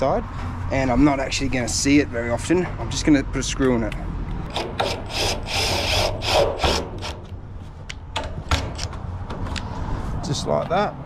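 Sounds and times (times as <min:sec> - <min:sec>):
impact driver grinding: 0:04.5 - 0:07.4.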